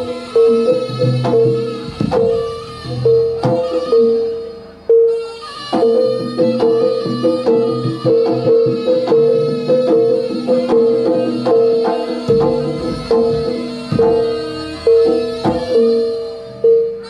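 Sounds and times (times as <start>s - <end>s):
gamelan music: 0.0s - 17.0s
hand drum strokes: 0.0s - 17.0s
gong-chime instruments ringing: 12.0s - 17.0s.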